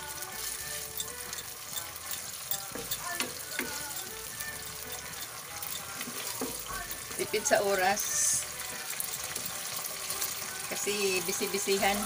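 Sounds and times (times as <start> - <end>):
meat sizzling in a pan: 0.0 - 12.0
spatula scraping a pan: 0.2 - 10.4.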